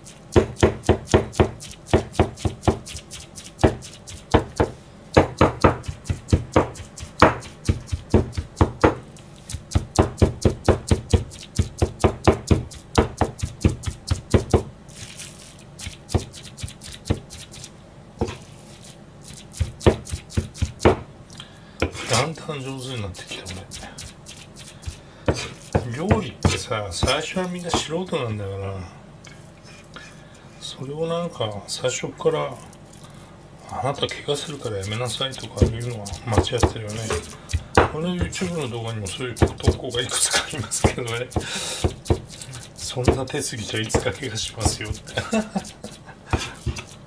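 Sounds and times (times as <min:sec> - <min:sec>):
cleaver chopping on cutting board: 0:00.3 - 0:14.7, 0:15.8 - 0:17.4, 0:19.5 - 0:21.1, 0:23.4 - 0:27.9, 0:34.5 - 0:47.0.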